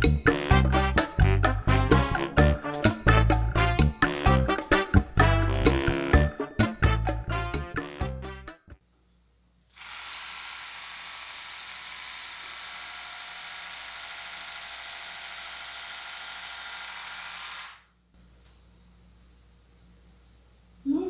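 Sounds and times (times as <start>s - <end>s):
hair trimming machine running: 9.7s - 17.9s.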